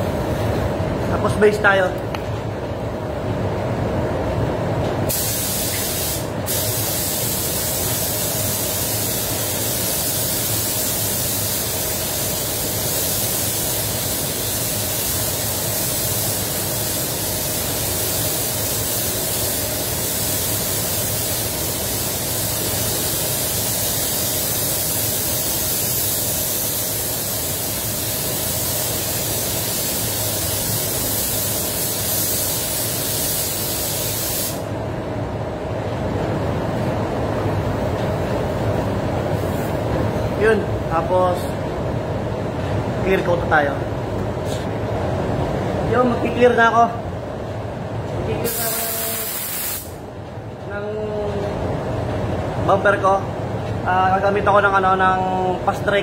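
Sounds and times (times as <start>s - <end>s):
paint spray gun hissing: 5.1s - 34.7s, 48.5s - 50.0s.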